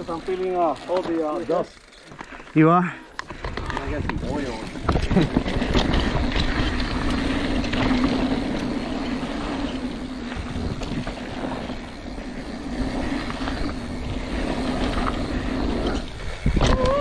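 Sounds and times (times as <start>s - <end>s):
bike tyres rattling over dirt: 0.0s - 17.0s
wind on microphone: 10.2s - 11.5s, 12.5s - 17.0s.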